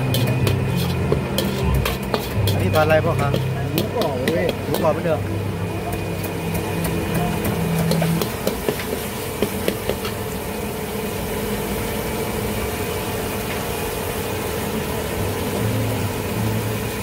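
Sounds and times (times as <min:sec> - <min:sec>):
metal ladle scraping a wok: 0:00.0 - 0:05.0.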